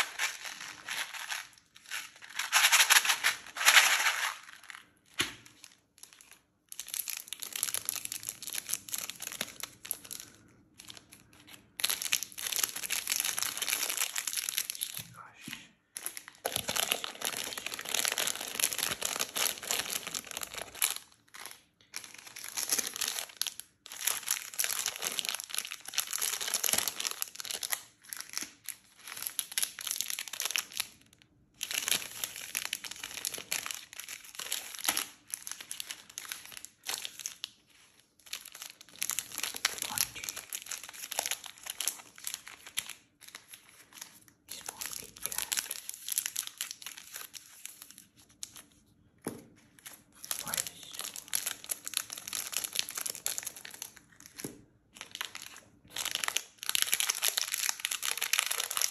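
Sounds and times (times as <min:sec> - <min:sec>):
candy wrappers crinkling: 0:00.0 - 0:48.9, 0:49.6 - 0:58.9.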